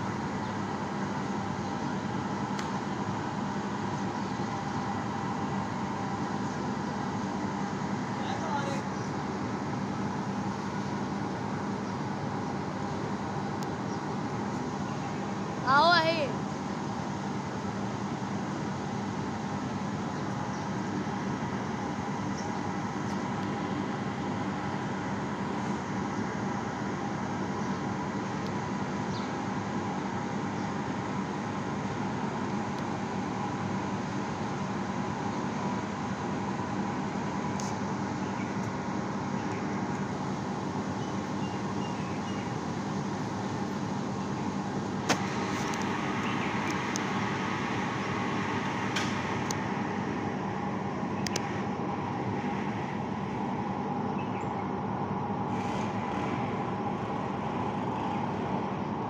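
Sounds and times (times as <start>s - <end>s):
road traffic noise: 0.0s - 59.0s
sharp clicks: 51.2s - 51.5s.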